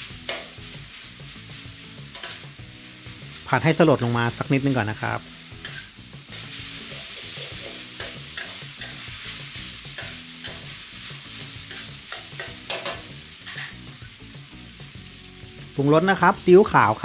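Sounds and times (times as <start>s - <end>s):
food sizzling in a wok: 0.0s - 17.0s
metal spatula scraping a wok: 0.2s - 4.2s, 5.2s - 14.0s.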